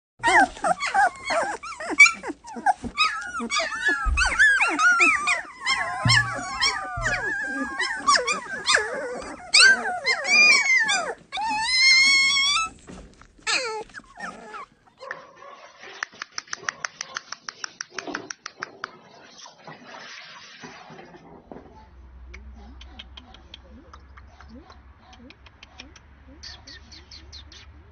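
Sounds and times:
puppies crying: 0.2 - 15.1.

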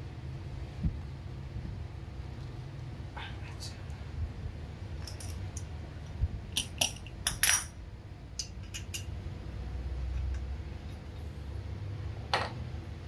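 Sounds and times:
metal tools clinking: 5.0 - 5.7.

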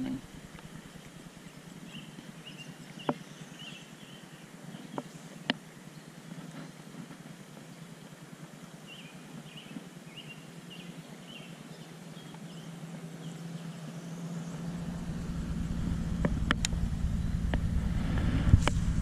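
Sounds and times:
bird chirping: 0.0 - 5.3, 8.9 - 18.2
low outdoor hum: 0.0 - 19.0.

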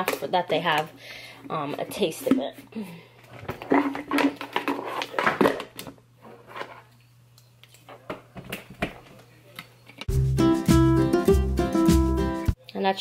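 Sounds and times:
music: 10.1 - 12.6.

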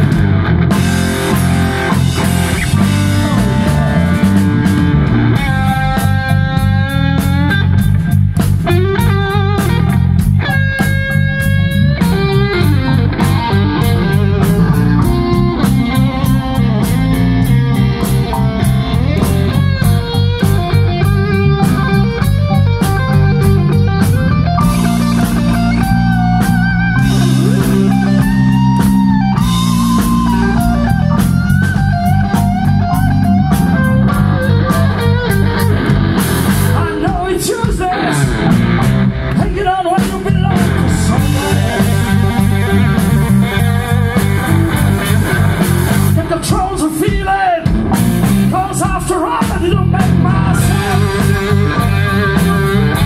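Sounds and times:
electric guitar bending notes: 0.0 - 46.7, 47.6 - 49.0, 49.6 - 53.0
bass guitar: 0.0 - 53.0
drum kit: 0.0 - 53.0.

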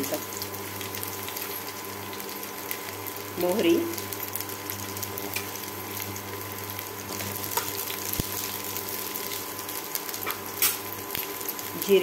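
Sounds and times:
spices sizzling in hot oil: 0.0 - 12.0.

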